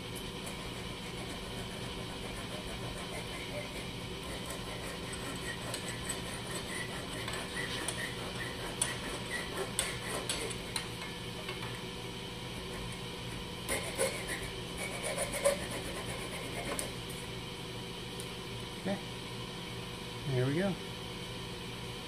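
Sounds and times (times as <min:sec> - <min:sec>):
hacksaw rasping: 0:01.1 - 0:10.8, 0:13.7 - 0:16.9.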